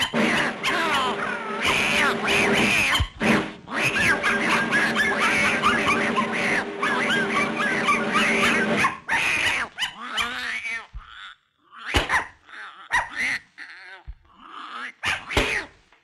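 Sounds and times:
loud dense cartoon music: 0:00.0 - 0:09.5
cartoon puppy growls and whimpers: 0:00.0 - 0:15.7.

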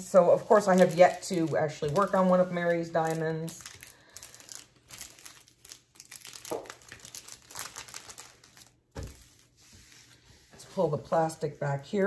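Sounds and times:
plastic film crinkling: 0:00.0 - 0:10.2.

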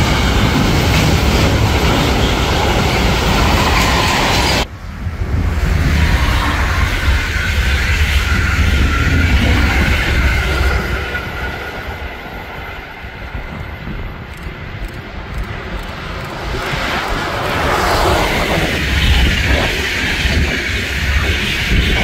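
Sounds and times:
passenger train rumbling past: 0:00.0 - 0:22.0.

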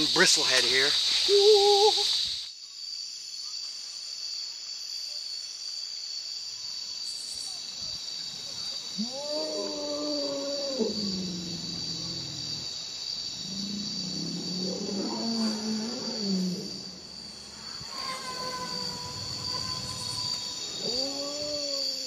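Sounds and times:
insects droning: 0:00.0 - 0:22.0
animal howling call: 0:09.0 - 0:12.7, 0:13.4 - 0:22.0
lower animal calls: 0:13.4 - 0:22.0.

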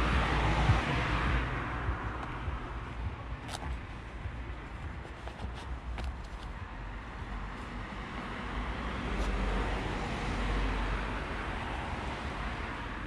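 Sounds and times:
wind and road noise: 0:00.0 - 0:13.0.

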